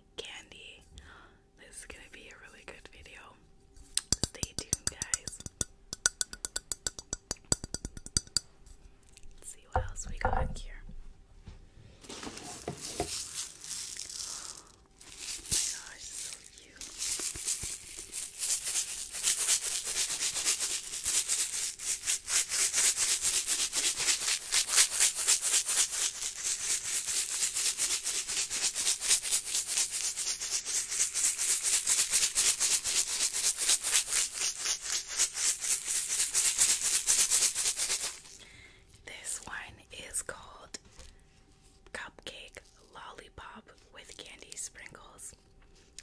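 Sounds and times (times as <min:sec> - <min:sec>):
candies rattling in plastic container: 0:12.1 - 0:22.0.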